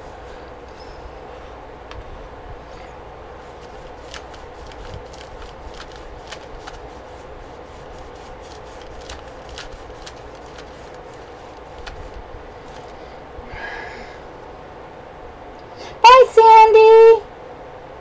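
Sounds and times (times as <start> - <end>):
hand rubbing on paper: 0.0 - 1.6, 2.7 - 13.0
background hum: 0.0 - 18.0.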